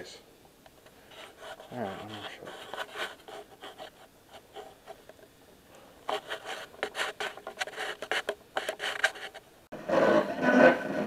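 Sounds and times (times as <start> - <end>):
clothing rubbing on microphone: 1.0 - 5.2, 6.1 - 9.5.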